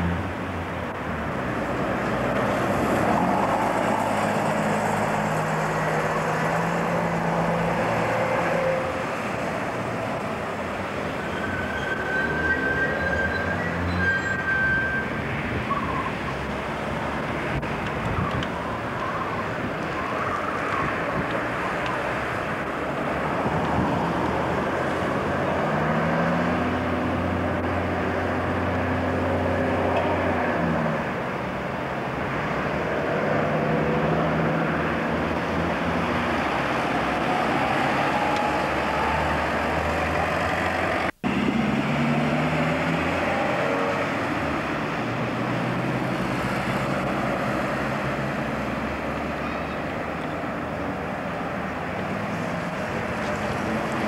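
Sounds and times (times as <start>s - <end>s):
road noise: 0.0s - 54.0s
vehicle engine accelerating: 32.4s - 49.4s.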